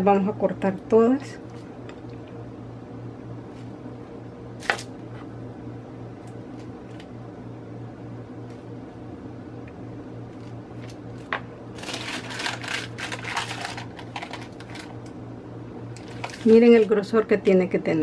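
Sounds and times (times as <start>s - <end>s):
wax paper crinkling: 10.4s - 15.1s, 16.0s - 17.1s.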